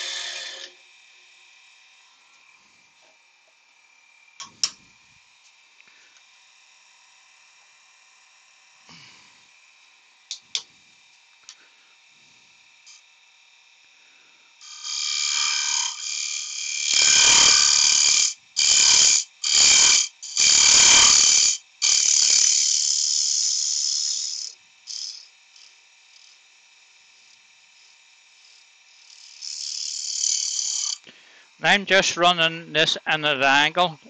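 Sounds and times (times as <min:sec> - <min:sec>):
lathe gouge scraping wood: 0:00.0 - 0:00.7, 0:14.6 - 0:26.4, 0:28.4 - 0:31.0
lathe motor hum: 0:00.0 - 0:34.0.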